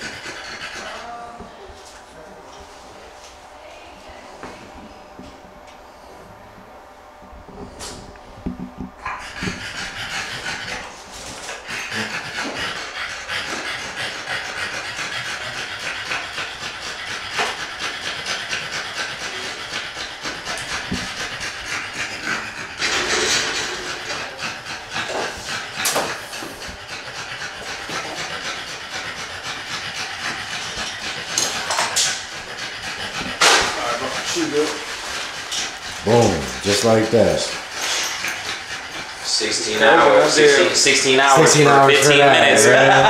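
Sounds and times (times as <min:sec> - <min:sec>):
dog panting: 0:00.0 - 0:03.0, 0:07.5 - 0:43.0.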